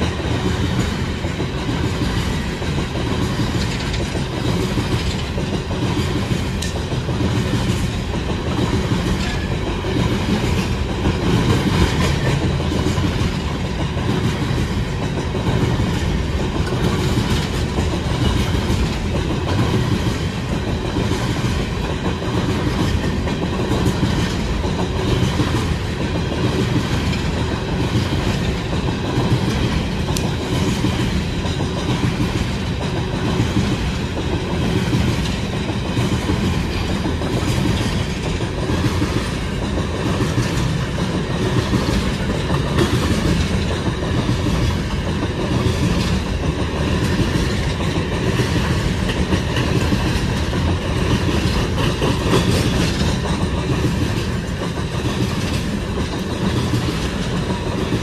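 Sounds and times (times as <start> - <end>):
train wheels clickety-clack: 0.0 - 58.0.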